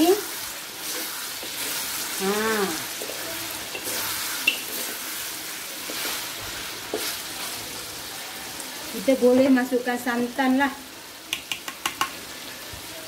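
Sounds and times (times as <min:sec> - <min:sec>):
wooden spatula scraping wok: 0:00.0 - 0:07.8
chicken sizzling in a wok: 0:00.0 - 0:13.0.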